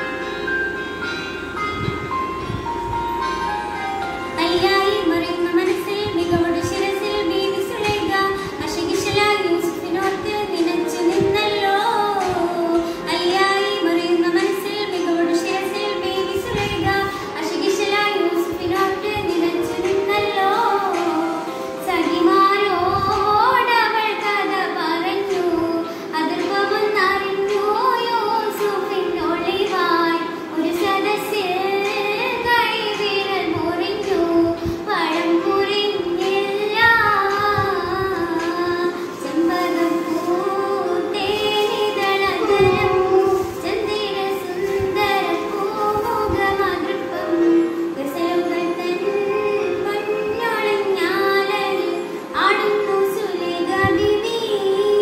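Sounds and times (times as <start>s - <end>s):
steady held tone: 0.0s - 8.6s
girl singing solo: 4.3s - 55.0s.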